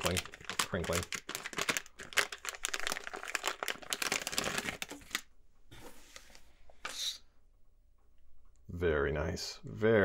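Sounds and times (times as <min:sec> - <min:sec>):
plastic bag crinkling: 0:00.0 - 0:05.3.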